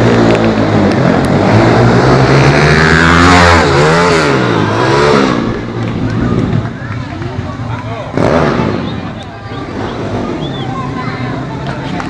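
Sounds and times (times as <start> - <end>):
motorbike engine revving: 0.0 - 12.0.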